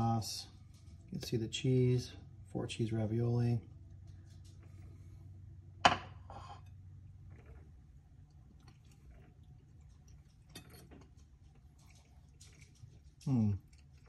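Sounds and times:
faint chewing: 0:03.7 - 0:05.6, 0:06.6 - 0:14.0.

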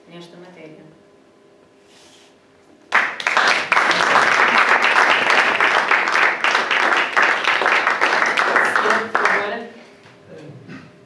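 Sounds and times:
audience applauding: 0:02.9 - 0:09.5.

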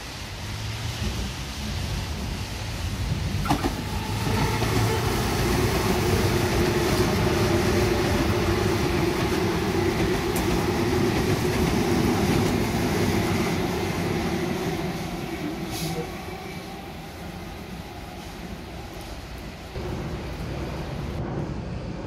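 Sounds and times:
wheel-on-rail rumble: 0:00.2 - 0:21.4.

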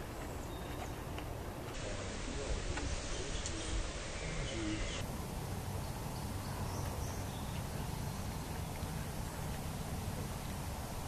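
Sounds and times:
faint bird calls: 0:01.8 - 0:05.0.

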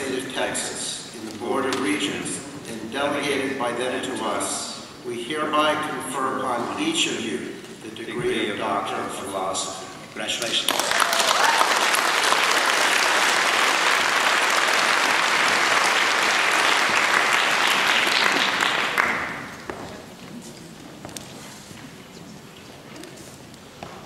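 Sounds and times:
audience applause: 0:10.4 - 0:19.7.

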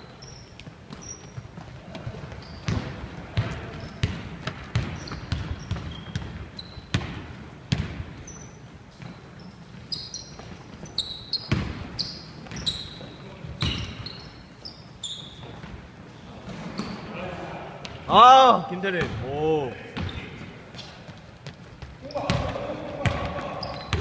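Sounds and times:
sneakers squeaking on wooden court: 0:00.0 - 0:17.2, 0:19.9 - 0:24.0
basketball bouncing on wooden floor: 0:00.9 - 0:08.1, 0:11.5 - 0:12.6.

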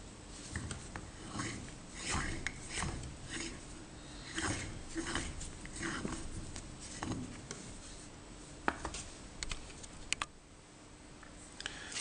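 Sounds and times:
hands rubbing and scraping metal: 0:00.4 - 0:08.2.

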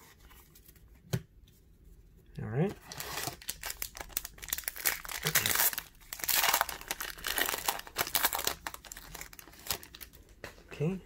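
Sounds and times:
foil wrapper crinkling and tearing: 0:02.9 - 0:10.2.

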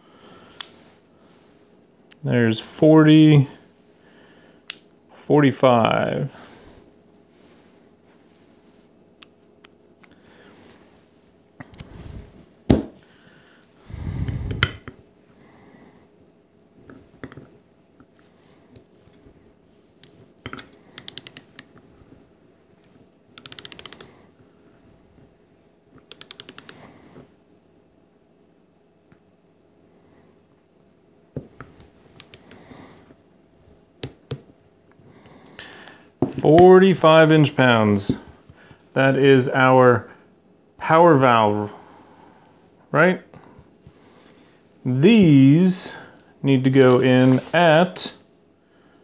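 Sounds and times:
torque wrench clicks: 0:21.0 - 0:21.7, 0:23.4 - 0:24.1.

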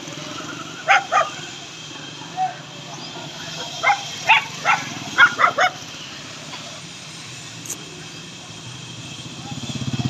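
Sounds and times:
dog barking: 0:00.9 - 0:01.4, 0:03.6 - 0:05.8.

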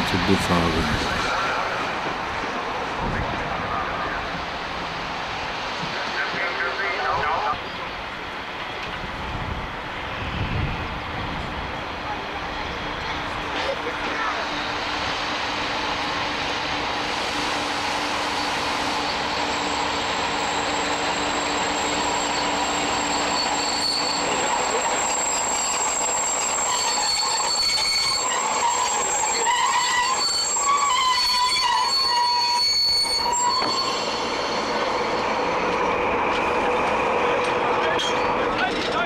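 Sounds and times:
diesel locomotive running slowly: 0:00.0 - 0:39.0
metallic squeal from running gear: 0:20.4 - 0:35.4.

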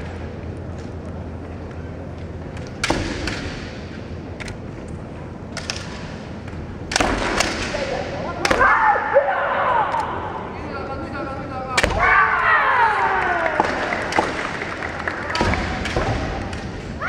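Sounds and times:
bamboo sword strikes cracking: 0:02.8 - 0:03.8, 0:06.9 - 0:07.8
fighter shouting: 0:08.5 - 0:10.4.

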